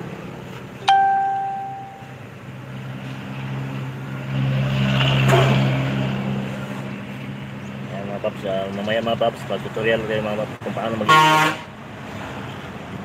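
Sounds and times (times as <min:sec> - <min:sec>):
bright ding: 0:00.8 - 0:02.1.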